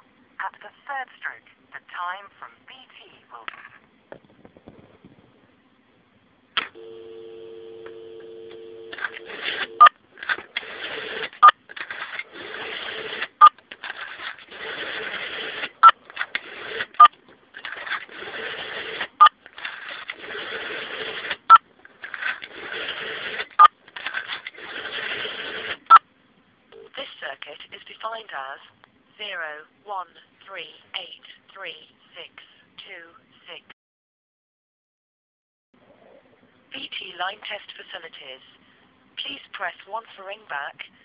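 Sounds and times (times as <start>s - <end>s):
two-tone dial tone: 6.7s - 10.0s
rotary dial whirring: 6.7s - 26.0s.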